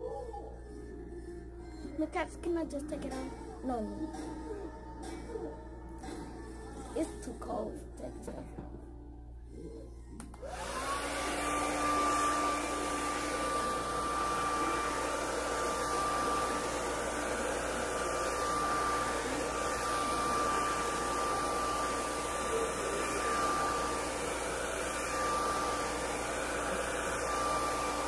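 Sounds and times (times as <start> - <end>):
hair dryer blowing: 10.2 - 28.0.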